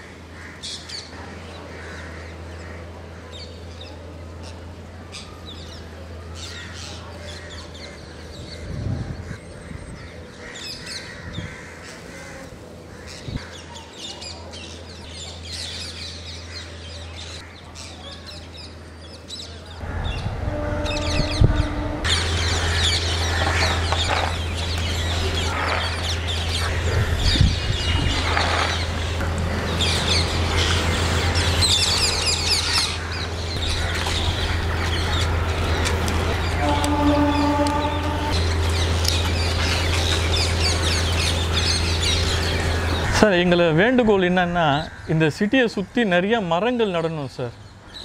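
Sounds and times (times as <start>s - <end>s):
parakeet flock calling: 4.4s - 18.0s, 19.8s - 43.3s
steady low hum: 18.4s - 45.0s.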